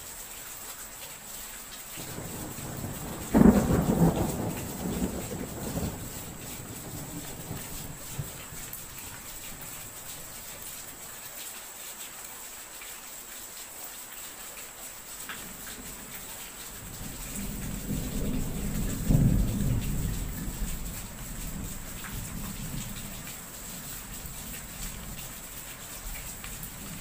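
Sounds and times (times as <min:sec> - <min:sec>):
steady rain: 0:00.0 - 0:27.0
thunder rumbling and cracking: 0:02.0 - 0:09.9, 0:16.8 - 0:23.9.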